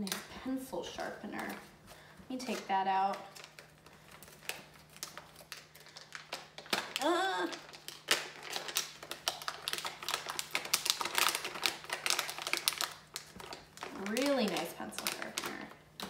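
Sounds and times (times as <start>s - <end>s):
packaging clicks and rattles: 2.4s - 16.0s
person humming: 7.0s - 7.6s.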